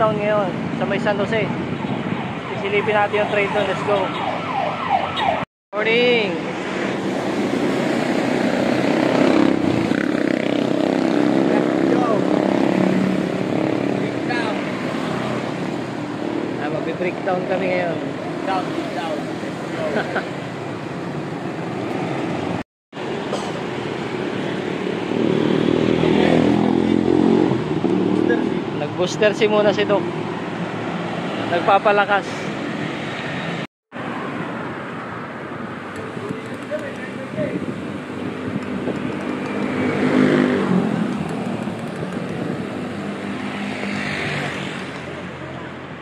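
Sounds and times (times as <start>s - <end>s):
street traffic passing: 0.0s - 46.0s
vehicle engine passing by: 24.4s - 31.7s, 36.2s - 45.8s.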